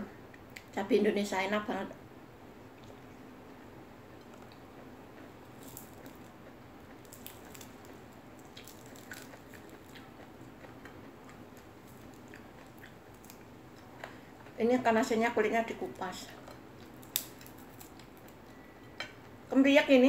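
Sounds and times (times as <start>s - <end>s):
chewing: 4.2s - 14.6s
crisp ticks of fish skin peeling: 5.4s - 6.3s, 6.9s - 13.8s, 16.8s - 18.4s.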